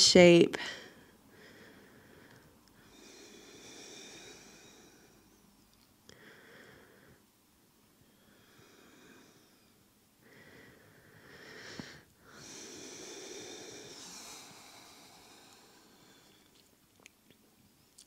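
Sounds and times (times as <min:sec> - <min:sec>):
deep human breathing: 0:00.6 - 0:07.3, 0:08.0 - 0:16.7.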